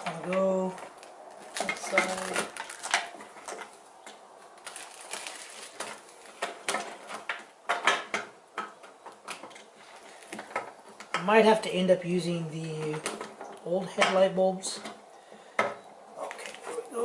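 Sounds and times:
plastic crinkling: 0.1 - 7.5, 16.2 - 17.0.

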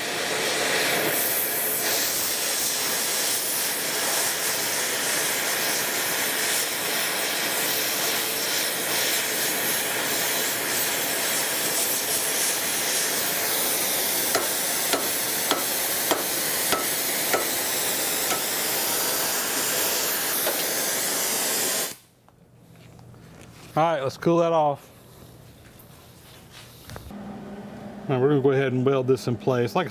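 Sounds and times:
torch flame hissing: 0.0 - 22.0
hammer striking metal: 14.3 - 18.6.

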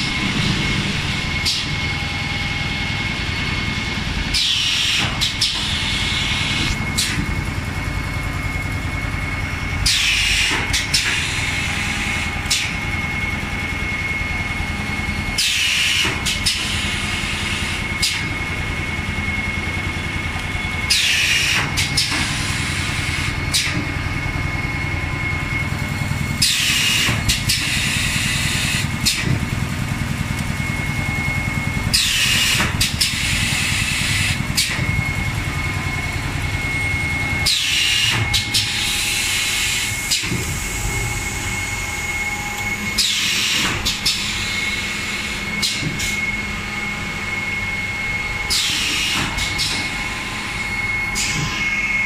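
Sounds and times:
machine mechanical hum: 0.0 - 52.0
pneumatic clicks: 15.4 - 16.8, 26.4 - 29.4, 37.4 - 40.8, 42.6 - 44.6, 45.6 - 46.2, 48.5 - 49.9.

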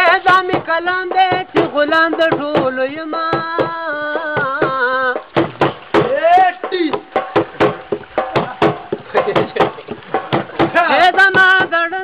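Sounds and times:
man singing in high voice: 0.0 - 7.1, 10.6 - 12.0
sharp percussive beats: 0.0 - 12.0.

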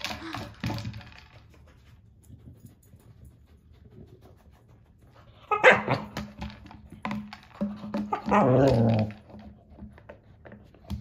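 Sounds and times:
dog sniffing and rustling: 1.1 - 5.9
dog whining: 5.3 - 6.1, 8.1 - 9.2
dog barking: 5.5 - 6.0.

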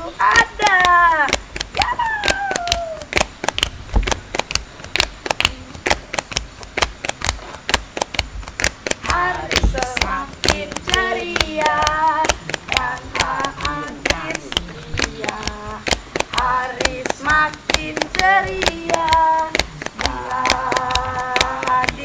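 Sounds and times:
boy singing: 0.0 - 3.1, 9.0 - 22.0
fast percussive beat: 0.0 - 22.0.

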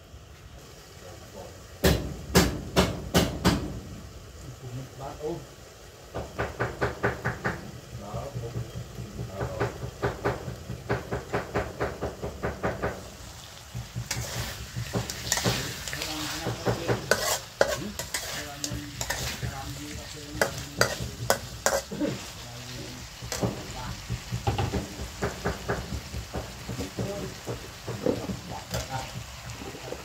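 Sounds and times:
food sizzling in a wok: 0.0 - 30.0
metal spatula scraping a pan: 13.9 - 24.3.

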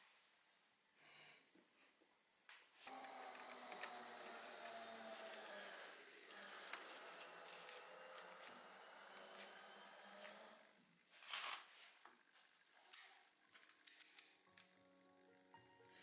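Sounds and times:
knife cutting paper: 2.9 - 10.4.

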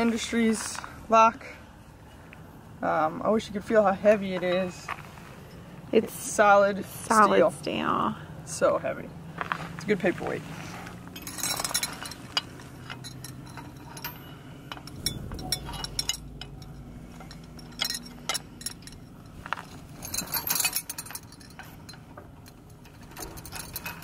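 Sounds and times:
metal chains clinking: 11.0 - 24.0.

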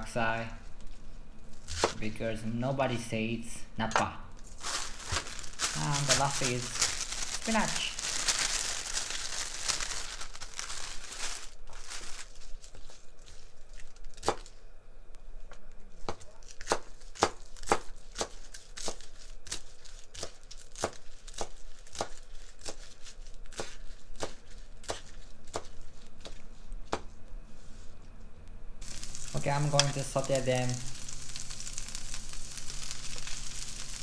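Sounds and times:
plastic bag crinkling: 4.4 - 14.2, 28.8 - 34.0.

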